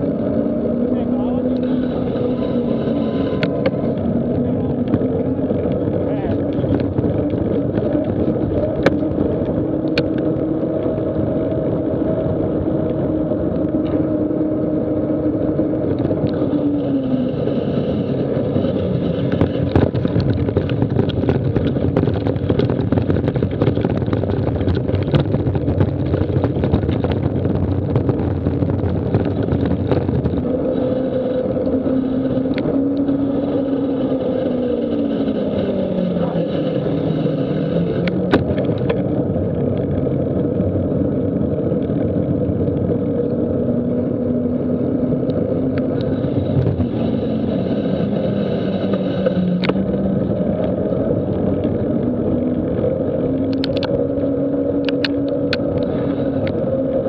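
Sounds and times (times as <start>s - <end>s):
bike rattling over dirt track: 0.0s - 57.0s
tyres humming on tarmac: 0.0s - 57.0s.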